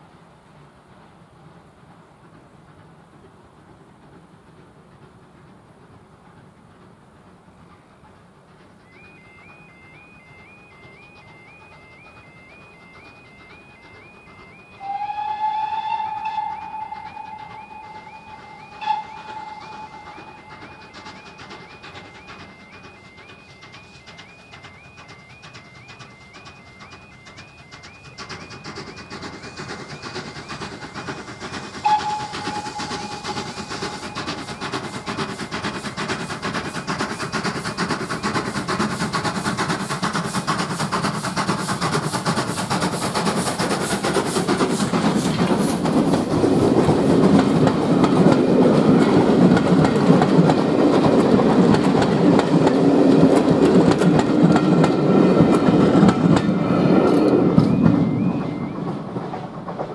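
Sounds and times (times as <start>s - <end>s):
steam locomotive exhaust beats: 0.0s - 59.9s
train wheels clattering over rail joints: 0.8s - 9.6s, 10.8s - 59.9s
steam whistle: 9.0s - 23.4s, 29.9s - 38.5s.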